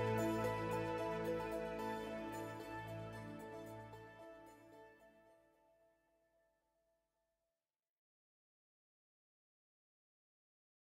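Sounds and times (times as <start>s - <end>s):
background music with held notes: 0.0s - 5.6s.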